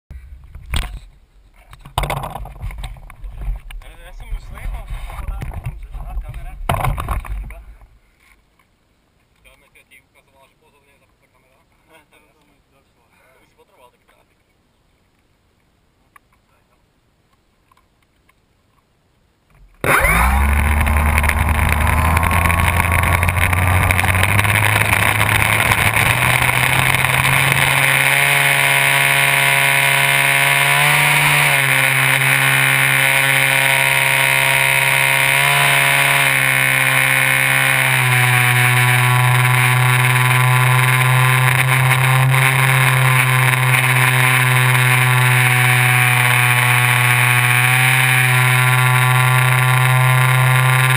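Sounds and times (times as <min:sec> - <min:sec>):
electric motor and propeller whine: 0:19.8 - 0:50.9.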